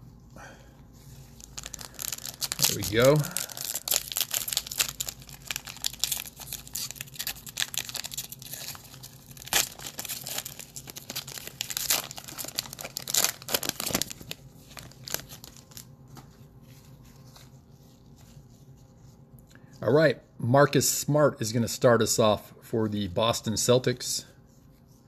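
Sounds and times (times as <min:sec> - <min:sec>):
wrapper tearing and crinkling: 0:01.4 - 0:16.3.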